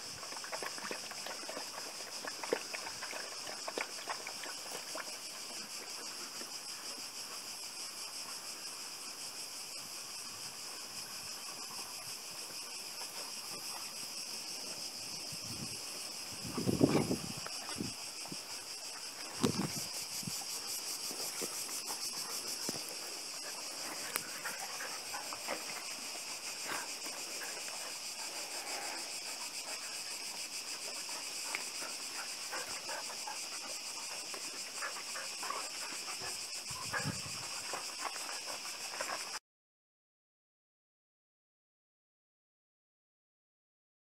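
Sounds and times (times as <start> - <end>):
insects chorus: 0.0 - 39.4
dogs scuffling on gravel: 19.1 - 29.1.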